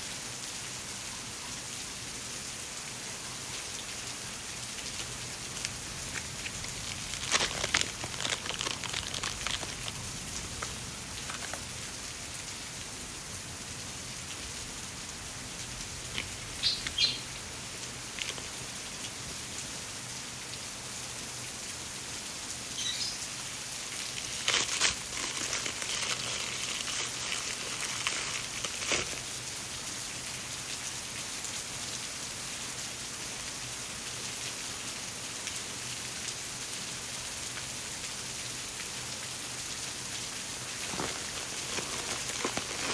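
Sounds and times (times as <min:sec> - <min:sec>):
steady rain-like hiss: 0:00.0 - 0:42.9
plastic wrapping crinkling: 0:04.8 - 0:11.7, 0:18.1 - 0:18.6, 0:23.8 - 0:29.4, 0:40.6 - 0:42.9.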